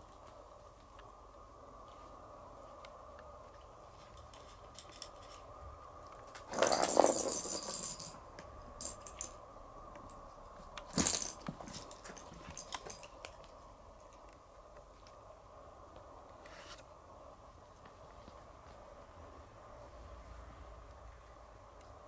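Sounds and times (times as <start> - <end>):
small hard objects rattling: 6.3 - 8.2, 8.8 - 9.4, 10.9 - 13.4.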